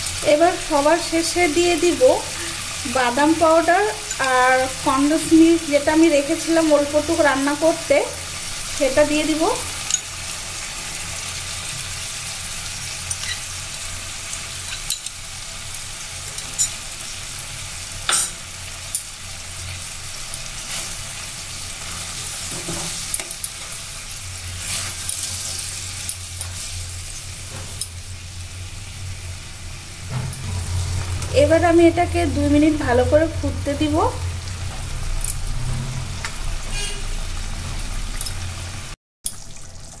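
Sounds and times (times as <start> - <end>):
gravy bubbling and sizzling: 0.0 - 40.0.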